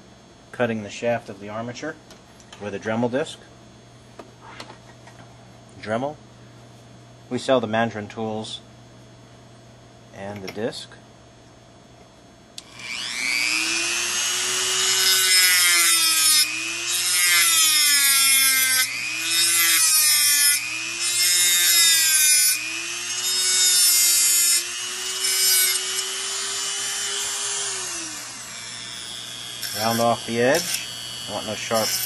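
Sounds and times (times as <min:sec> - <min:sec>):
rotary tool motor whine: 0:12.6 - 0:32.0
disc grinding through metal: 0:24.9 - 0:32.0.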